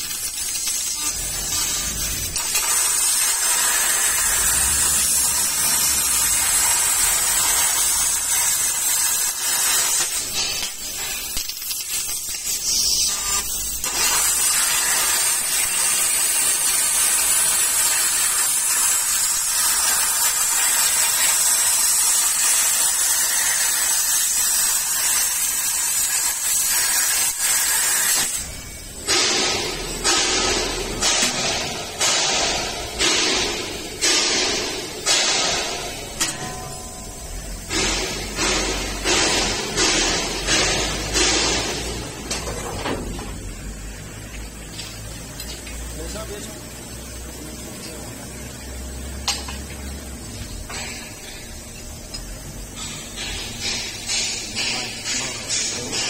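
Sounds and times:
hiss of gas jet: 1.8s - 28.5s.

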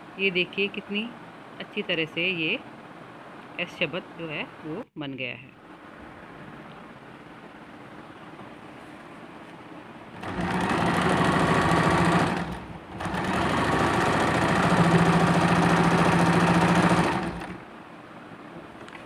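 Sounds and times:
sewing machine stitching: 10.2s - 17.6s.

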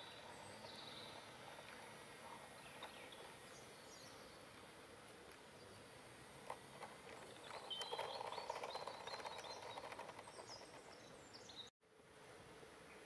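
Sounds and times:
small birds chirping: 0.0s - 11.7s
model train motor hum: 6.2s - 11.1s
wheels clicking on rails: 6.4s - 11.5s.

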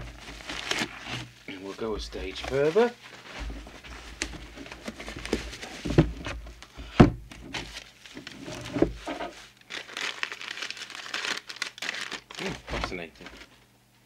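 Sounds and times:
paper crinkling: 0.0s - 6.4s, 7.4s - 13.6s
bubble wrap and paper handled: 0.0s - 6.7s, 7.3s - 13.7s
dull thumps and knocks: 3.3s - 7.8s, 8.5s - 9.3s.

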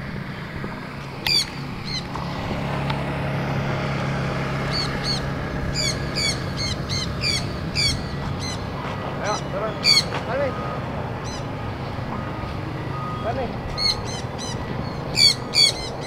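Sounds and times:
parrots screeching: 1.3s - 2.0s, 4.7s - 8.6s, 9.3s - 10.2s, 11.2s - 11.5s, 13.7s - 16.0s.

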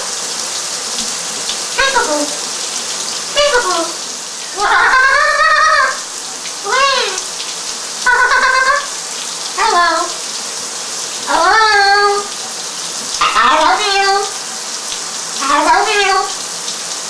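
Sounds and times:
shower spray hissing: 0.0s - 17.0s
parrot calling: 1.8s - 2.4s, 3.3s - 7.4s, 8.0s - 10.2s, 11.3s - 12.4s, 13.1s - 14.4s, 15.4s - 16.4s.

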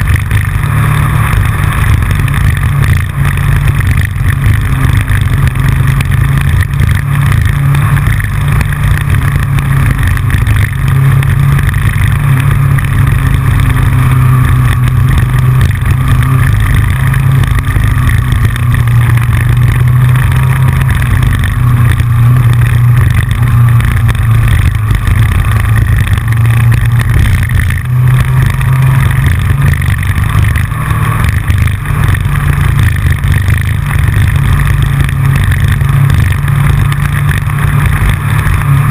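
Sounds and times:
motorcycle engine cruising: 0.0s - 38.9s
wind and road noise: 0.0s - 38.9s.

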